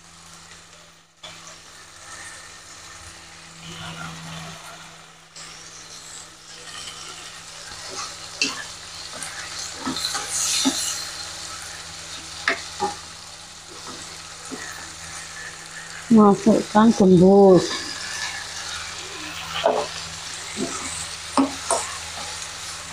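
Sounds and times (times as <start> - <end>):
vegetables sizzling in a wok: 0.0 - 22.9
spatula stirring and scraping: 5.4 - 16.3, 16.9 - 22.9.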